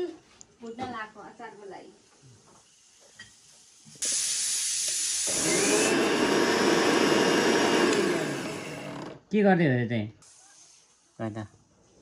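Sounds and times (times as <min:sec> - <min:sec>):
mixer grinder grinding seeds: 0:04.8 - 0:09.2.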